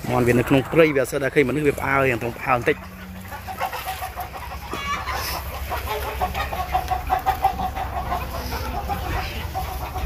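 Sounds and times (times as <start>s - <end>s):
chickens clucking: 0.0s - 10.0s.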